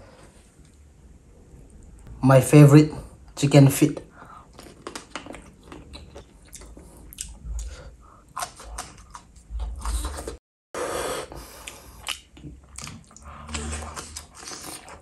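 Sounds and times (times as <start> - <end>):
biting and chewing wet food: 4.4 - 10.4, 11.6 - 15.0.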